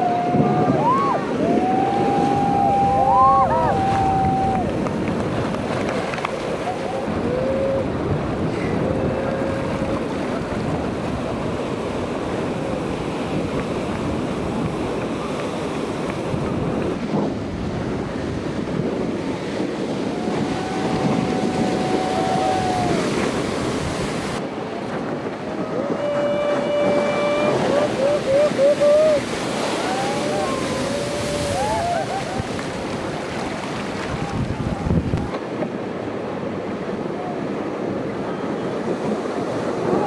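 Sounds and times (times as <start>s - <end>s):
ocean surf breaking: 0.0s - 40.0s
wind buffeting the microphone: 0.0s - 40.0s.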